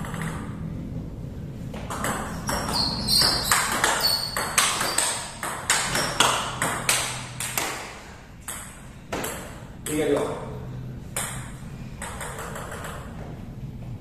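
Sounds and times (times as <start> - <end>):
table tennis ball clicking: 1.9 - 7.8, 11.1 - 13.2.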